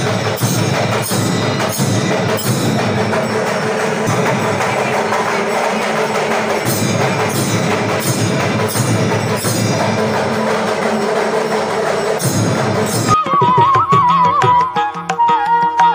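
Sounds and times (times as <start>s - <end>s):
bells ringing: 0.0s - 13.3s
drums: 0.0s - 15.9s.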